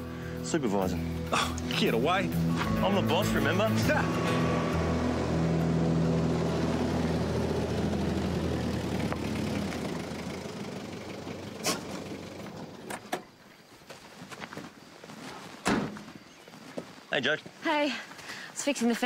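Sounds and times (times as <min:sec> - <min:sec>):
truck engine running: 0:01.7 - 0:13.2.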